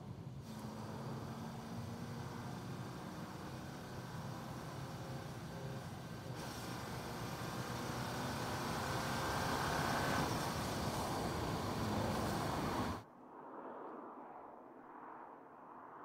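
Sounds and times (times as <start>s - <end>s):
car engine and tyre noise: 0.0s - 16.0s.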